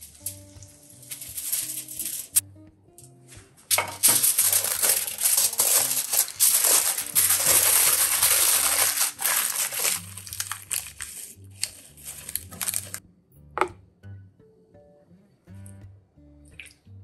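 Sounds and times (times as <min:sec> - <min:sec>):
aluminium foil crinkling: 0:00.0 - 0:02.4, 0:03.7 - 0:13.0.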